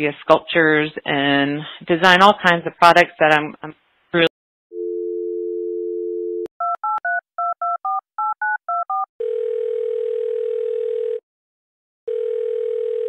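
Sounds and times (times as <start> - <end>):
telephone ringback tone: 4.7 - 11.2, 12.1 - 13.0.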